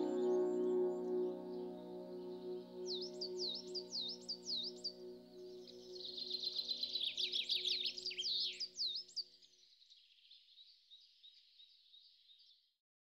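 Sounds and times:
soft ambient music: 0.0s - 8.6s
birds chirping: 0.0s - 9.2s.

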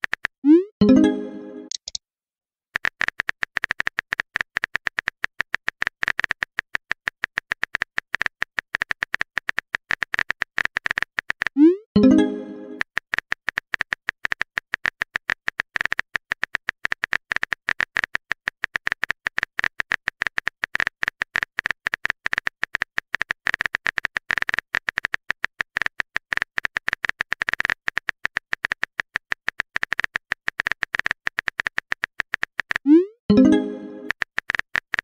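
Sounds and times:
keyboard typing clicks: 0.1s - 2.0s, 10.1s - 12.9s, 30.9s - 35.0s.

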